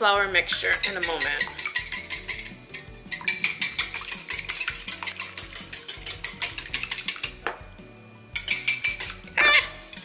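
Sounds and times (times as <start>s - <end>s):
wire whisk clicking against bowl: 0.5s - 2.5s, 3.1s - 7.4s, 8.4s - 9.3s.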